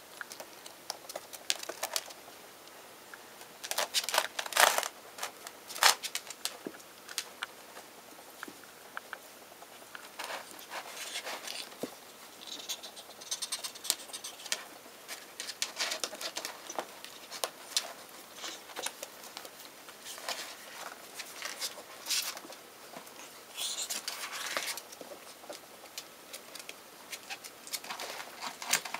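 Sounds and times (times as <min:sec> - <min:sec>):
notebooks rustling and knocking: 0:03.6 - 0:07.2
claws scratching on paper: 0:12.4 - 0:18.9.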